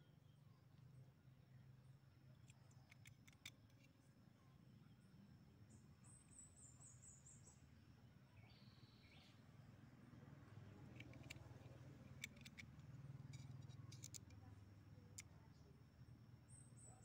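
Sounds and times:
faint clicks: 10.9 - 14.4.

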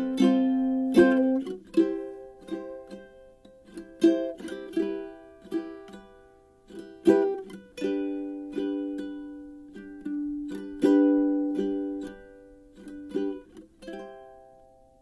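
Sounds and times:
plucked strings tune: 0.0 - 15.0.

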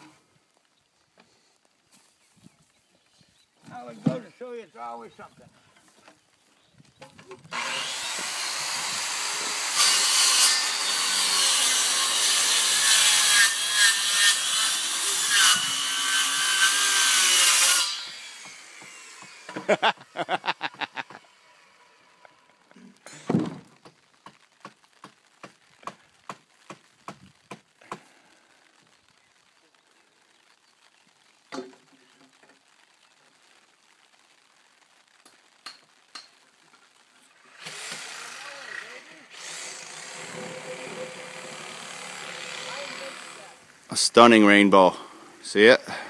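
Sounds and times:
hand saw strokes: 7.5 - 19.7, 37.6 - 43.6
circular saw cutting wood: 7.5 - 19.8, 37.5 - 43.6.

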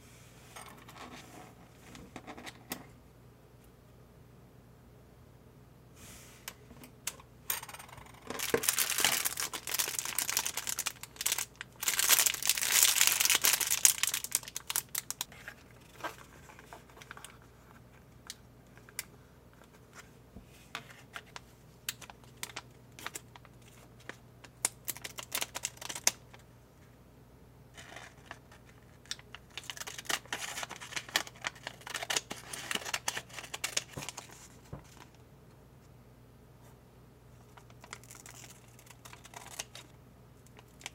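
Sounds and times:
plastic packaging crinkling: 8.4 - 15.3, 21.9 - 26.4, 27.8 - 35.1, 37.5 - 39.9.

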